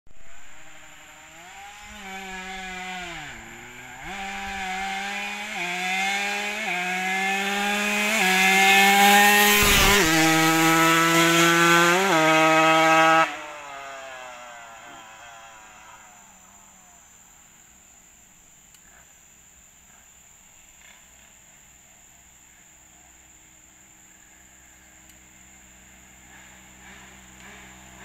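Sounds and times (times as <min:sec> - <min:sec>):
motorcycle engine revving: 0:00.2 - 0:17.2, 0:25.3 - 0:28.0.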